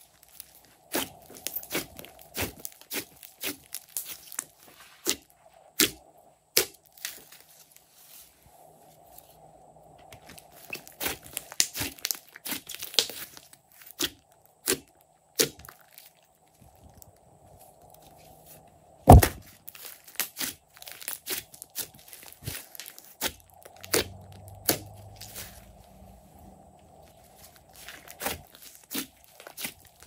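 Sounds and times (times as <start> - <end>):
sticky slime pops and crackles: 19.1 - 25.4.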